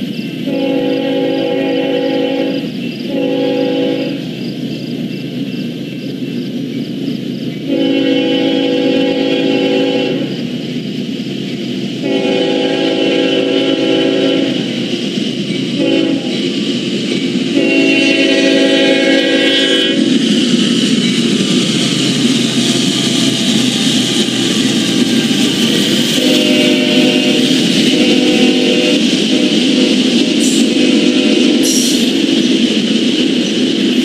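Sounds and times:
train cars rumbling and clattering: 0:00.0 - 0:34.0
locomotive horn blasts: 0:00.5 - 0:04.2, 0:07.7 - 0:10.4, 0:12.0 - 0:14.7, 0:15.8 - 0:16.4, 0:17.5 - 0:20.1, 0:26.2 - 0:32.0.

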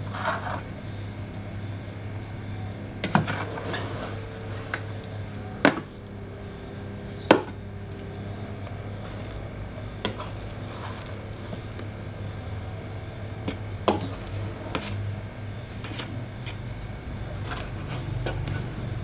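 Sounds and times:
steady low hum: 0:00.0 - 0:19.0
rice paddle fluffing rice: 0:08.9 - 0:11.8.

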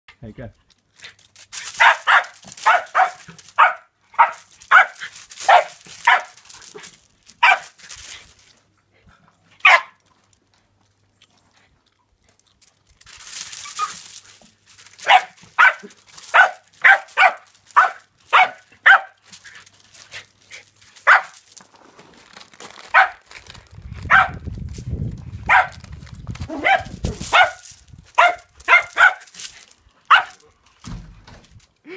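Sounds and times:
small dog yapping: 0:01.8 - 0:06.4, 0:07.4 - 0:07.8, 0:13.6 - 0:14.0, 0:15.0 - 0:19.2, 0:22.9 - 0:23.2, 0:24.1 - 0:24.4, 0:26.5 - 0:27.6, 0:28.2 - 0:29.3, 0:30.1 - 0:30.4.

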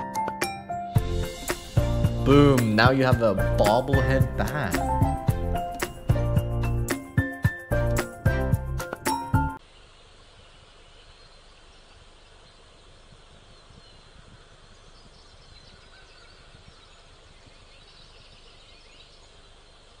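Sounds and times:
steady background hiss: 0:09.6 - 0:20.0.

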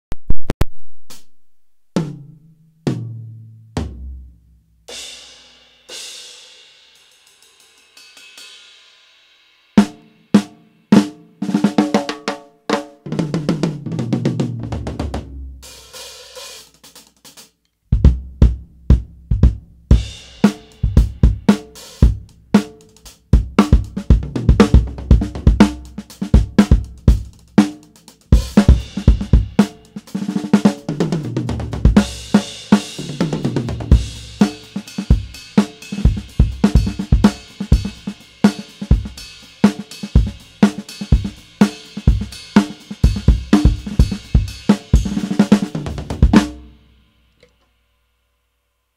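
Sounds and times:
drum kit groove played with rods: 0:00.6 - 0:47.6
tom fill: 0:11.0 - 0:46.8.

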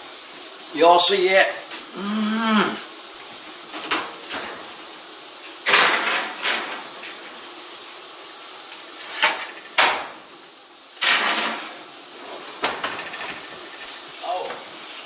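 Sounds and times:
oven door and rack clattering: 0:03.8 - 0:04.7, 0:05.6 - 0:07.2, 0:11.0 - 0:13.7.

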